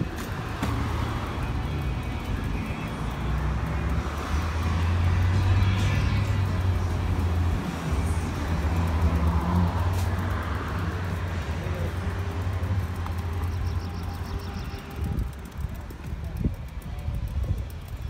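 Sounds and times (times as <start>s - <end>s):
traffic engine rumble: 0.0s - 18.0s.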